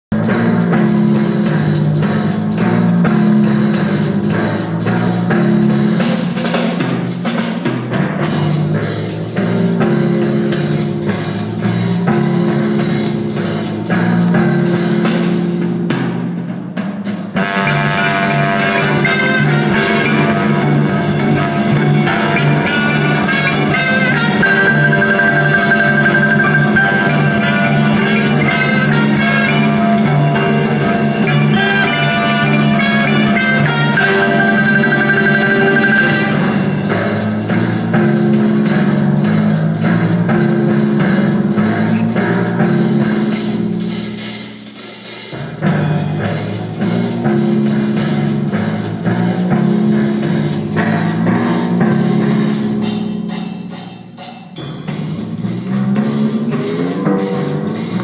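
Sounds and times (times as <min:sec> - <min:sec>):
swing jazz band playing: 0:00.1 - 0:53.6, 0:54.5 - 0:58.0
timpani notes: 0:00.1 - 0:58.0
fast repeated high note: 0:17.4 - 0:37.4.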